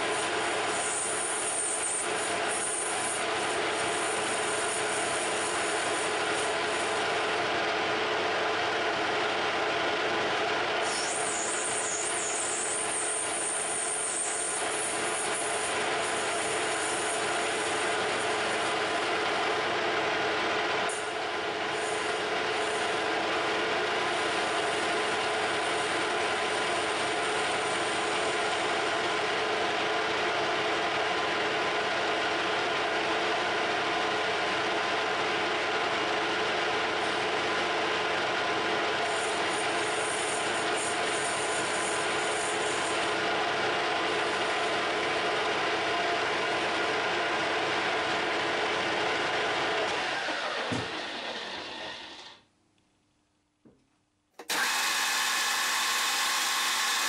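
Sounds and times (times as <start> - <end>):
lathe gears whining: 49.8 - 52.4, 54.4 - 57.0
boring bar cutting brass: 54.4 - 57.0.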